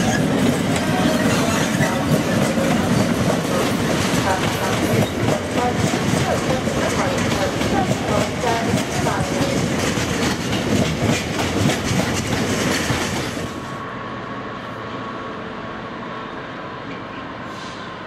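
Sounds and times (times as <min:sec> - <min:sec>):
train wheels clacking over rail joints: 0:00.0 - 0:13.6
diesel locomotive approaching: 0:00.0 - 0:18.0.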